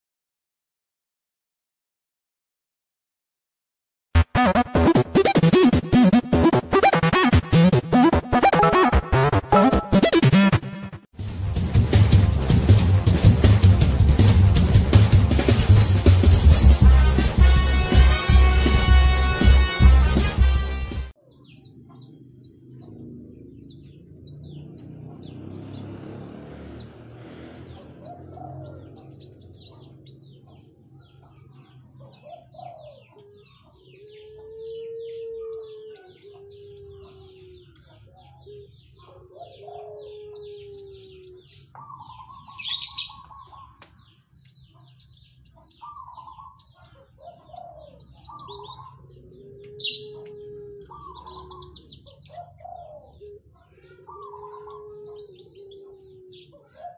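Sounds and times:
harsh bird notes: 4.2 - 30.8
lark singing chirps and trills: 21.2 - 56.9
low cooing notes: 32.3 - 42.6, 47.4 - 56.9.

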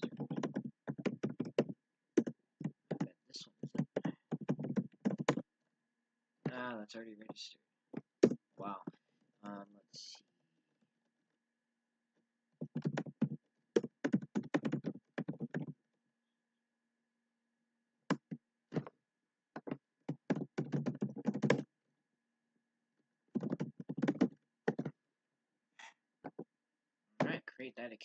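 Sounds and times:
typing on computer keyboard: 0.0 - 3.1, 3.7 - 5.4, 12.6 - 15.7, 19.6 - 21.6, 23.4 - 24.9.

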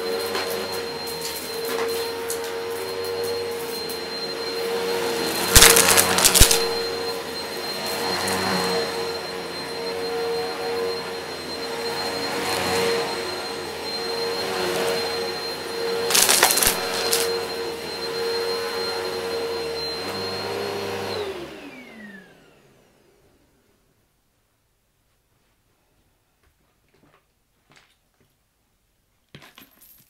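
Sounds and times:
vacuum cleaner running on carpet: 0.0 - 23.6
debris crackling in vacuum: 5.5 - 6.8, 16.1 - 17.4.

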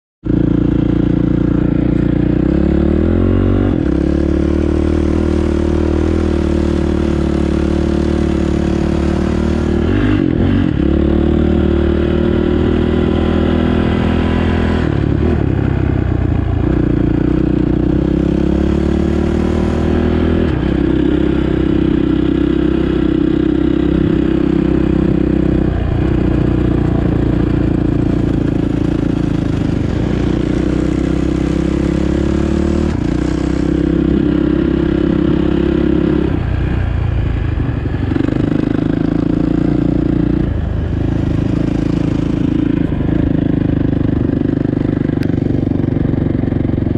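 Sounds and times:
dirt bike engine revving: 0.3 - 15.5, 16.6 - 36.4.

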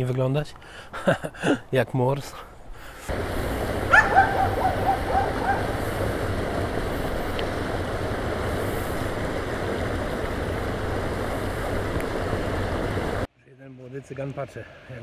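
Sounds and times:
stream rushing over weir: 3.1 - 13.3.

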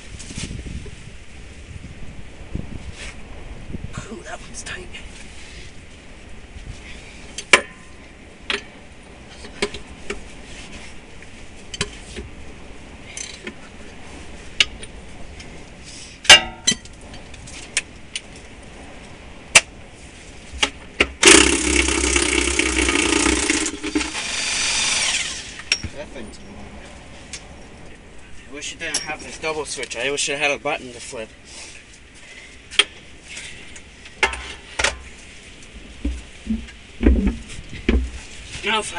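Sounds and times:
impact wrench running: 21.2 - 25.7.

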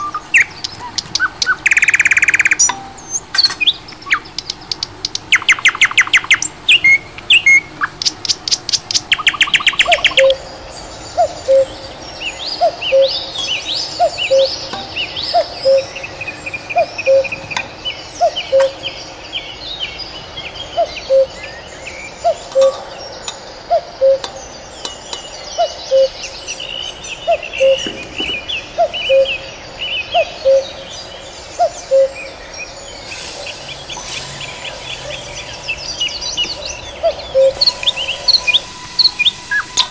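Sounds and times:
birds twittering: 0.0 - 39.9
rapid bird trill: 0.0 - 39.9.

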